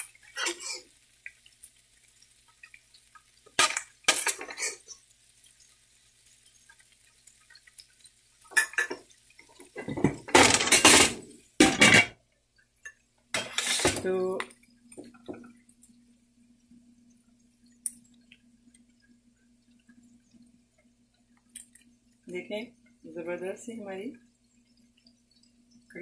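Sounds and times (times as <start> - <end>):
spatula scraping frying pan: 3.6 - 5.0, 13.4 - 14.1.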